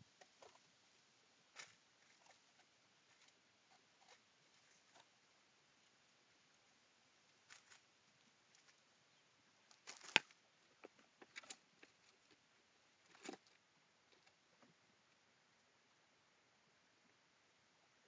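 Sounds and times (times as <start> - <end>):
rustles and taps in dry leaves: 7.3 - 8.8, 9.6 - 12.4.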